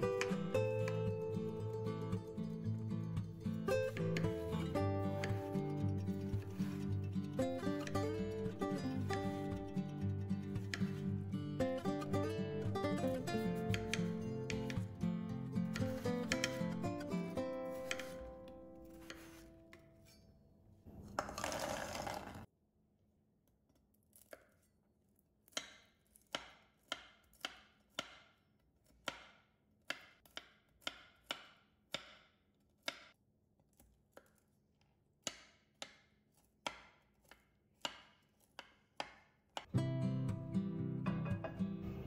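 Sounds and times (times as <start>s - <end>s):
knife chopping on cutting board: 5.1s - 5.6s, 6.2s - 6.8s, 10.4s - 11.3s, 12.6s - 15.0s, 15.6s - 19.8s, 35.2s - 39.7s.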